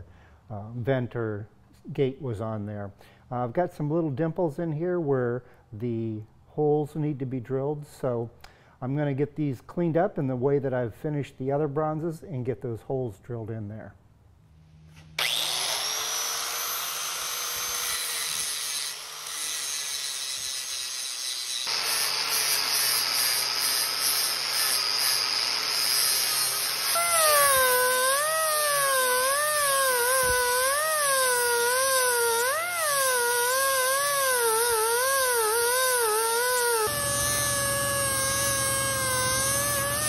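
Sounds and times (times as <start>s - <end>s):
angle grinder grinding: 14.9s - 40.0s
die grinder whine: 15.0s - 40.0s.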